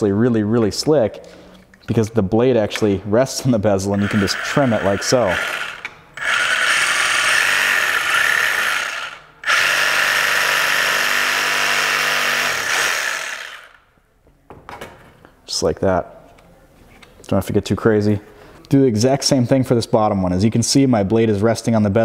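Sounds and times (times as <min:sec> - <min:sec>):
reciprocating saw cutting plastic: 0:04.0 - 0:13.8.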